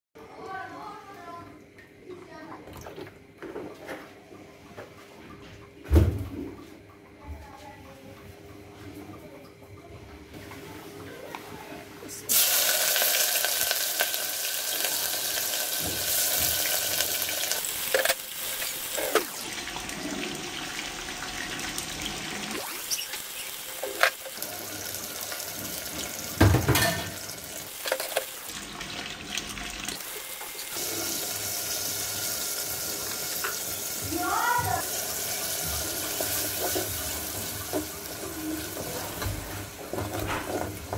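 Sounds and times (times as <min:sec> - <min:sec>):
food sizzling in hot oil: 0:12.3 - 0:40.9.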